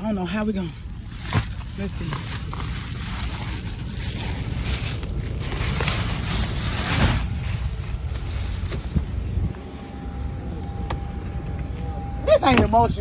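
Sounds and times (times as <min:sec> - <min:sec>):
plastic packages rustling and crinkling: 0:00.8 - 0:09.2
faint steady tone: 0:09.1 - 0:13.0.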